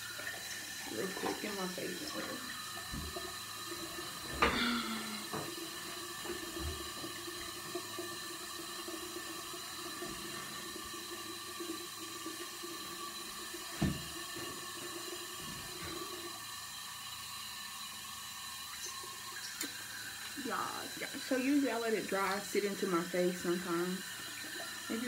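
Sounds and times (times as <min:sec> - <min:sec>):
tap running into sink: 0:00.1 - 0:16.1.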